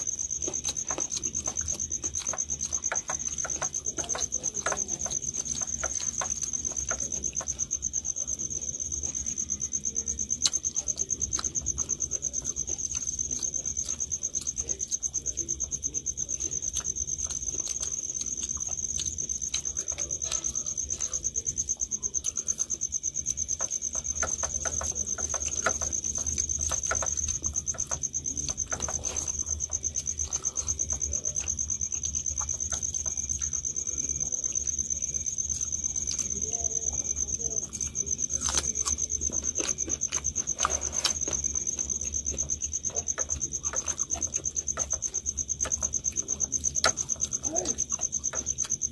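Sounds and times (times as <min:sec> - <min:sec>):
cricket trilling: 0:00.0 - 0:48.9
hands eating from steel plates: 0:00.0 - 0:48.9.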